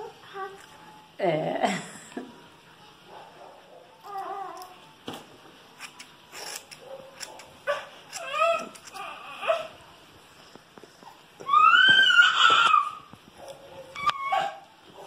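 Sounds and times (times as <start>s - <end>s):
scissors cutting hair: 5.8s - 9.2s
small dog whimpering and yipping: 14.0s - 14.7s.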